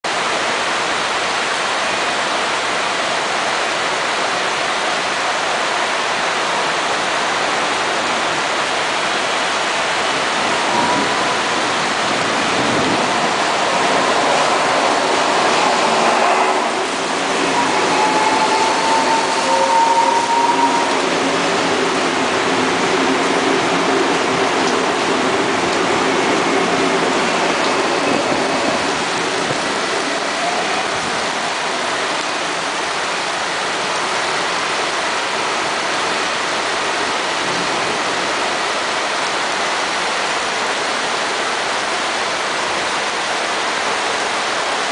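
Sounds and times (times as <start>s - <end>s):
heavy rain hissing: 0.1s - 44.9s
train whining tones: 8.9s - 32.7s
electric train running: 10.0s - 31.4s.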